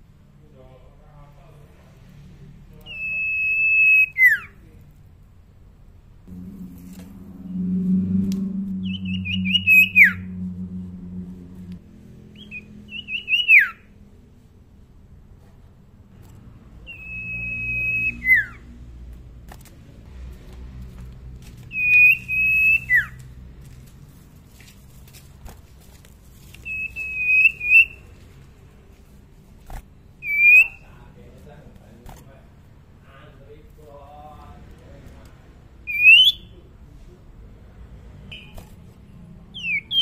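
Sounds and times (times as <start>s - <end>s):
bird whistled song: 2.8s - 4.6s, 7.8s - 10.4s, 12.3s - 13.9s, 16.8s - 18.7s, 21.7s - 23.2s, 26.6s - 28.1s, 30.2s - 30.9s, 35.9s - 36.6s, 39.6s - 40.0s.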